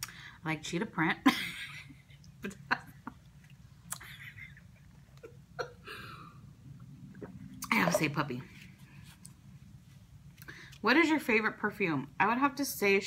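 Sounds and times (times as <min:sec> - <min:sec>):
swallowing gulps: 0:06.8 - 0:08.0.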